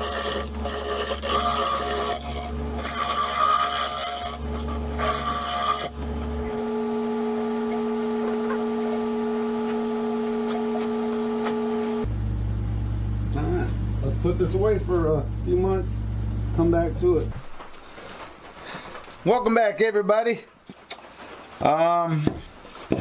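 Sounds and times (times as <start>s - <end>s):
power sander rasping on wood: 0.0s - 12.1s
lathe hum: 0.0s - 14.1s
lathe motor rumble: 0.0s - 17.3s.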